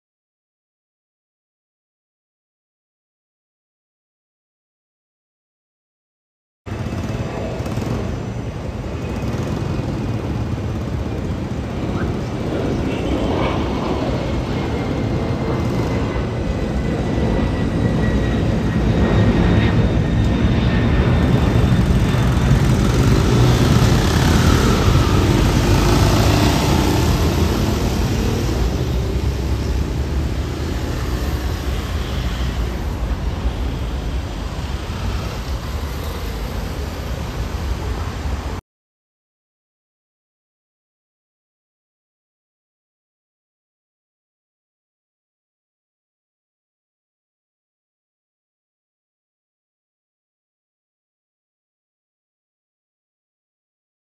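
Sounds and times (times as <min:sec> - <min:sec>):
jet engine roar: 0:06.7 - 0:38.6
thin jet whine: 0:09.9 - 0:38.1.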